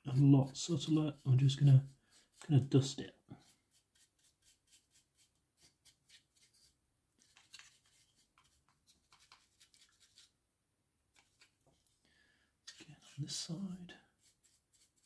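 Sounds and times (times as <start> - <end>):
dry brush scratchy strokes: 0.0 - 10.3, 12.7 - 15.0.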